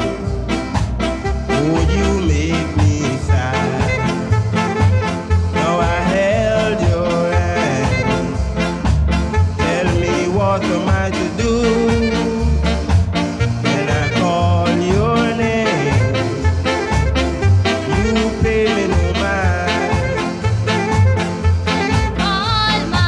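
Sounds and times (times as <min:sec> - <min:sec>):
bouncing bass line: 0:00.0 - 0:23.0
reggae record: 0:00.0 - 0:23.0
person singing: 0:01.5 - 0:04.3, 0:05.5 - 0:08.4, 0:09.6 - 0:12.8, 0:13.6 - 0:16.4, 0:17.8 - 0:20.4, 0:22.2 - 0:23.0.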